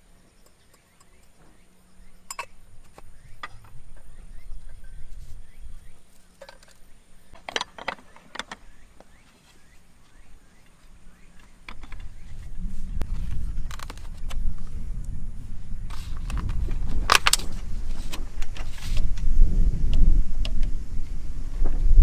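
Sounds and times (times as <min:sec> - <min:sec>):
low rumble: 0:11.0 - 0:22.0.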